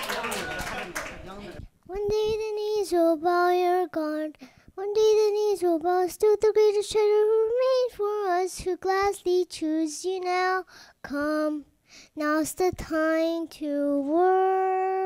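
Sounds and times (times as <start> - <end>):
girl singing into microphone: 1.8 - 15.0.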